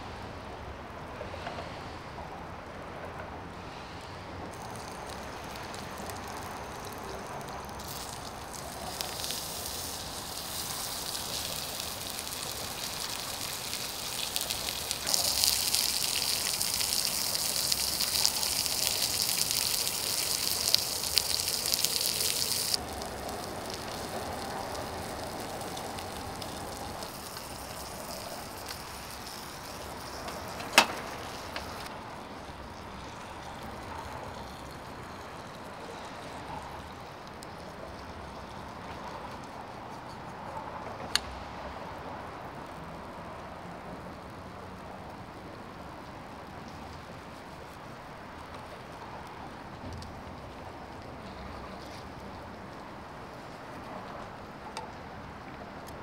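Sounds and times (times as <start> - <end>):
meat sizzling on a griddle: 4.6 - 31.9.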